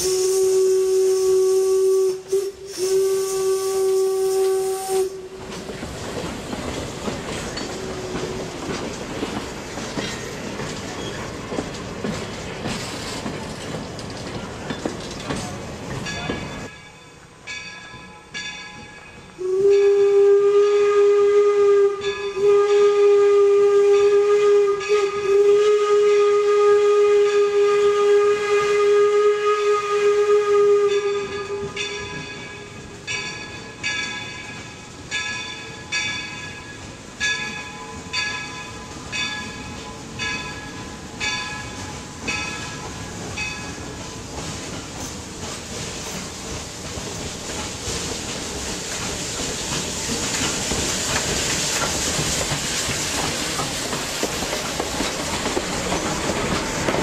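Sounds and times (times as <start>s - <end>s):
steam whistle blast: 0.0s - 5.4s, 19.4s - 31.8s
steam locomotive exhaust chuffs: 0.0s - 16.7s, 19.2s - 57.0s.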